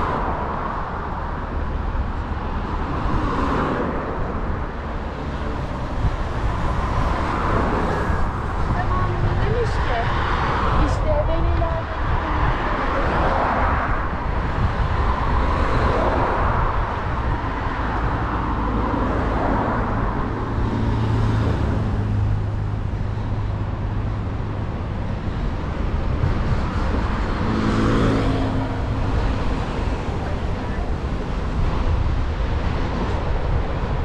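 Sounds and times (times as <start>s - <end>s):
cars passing: 0.0s - 34.0s.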